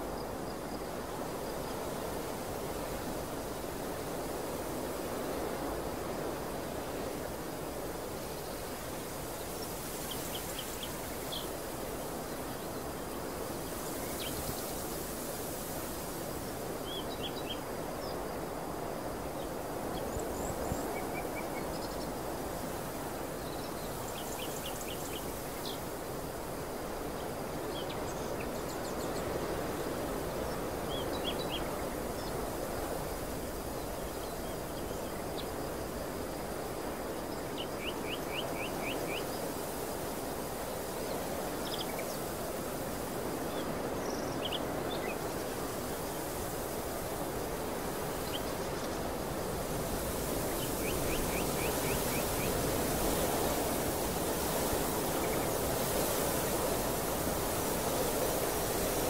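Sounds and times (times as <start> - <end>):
small birds chirping: 49.9 - 59.0.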